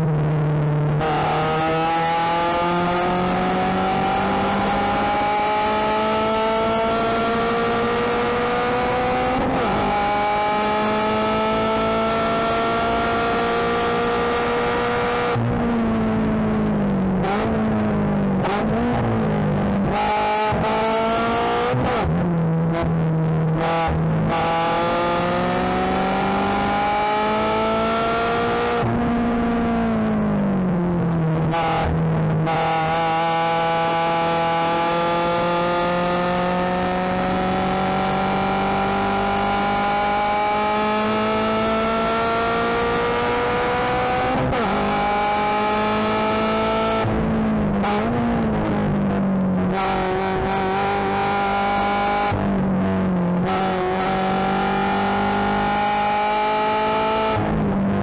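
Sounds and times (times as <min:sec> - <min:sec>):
race car engine revving: 0:00.9 - 0:58.0.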